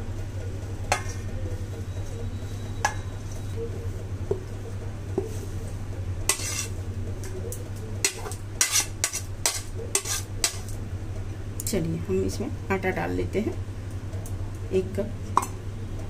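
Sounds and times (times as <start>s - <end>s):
steady low hum: 0.0s - 16.0s
spoon scraping into steel bowl: 6.3s - 6.8s, 8.0s - 10.7s.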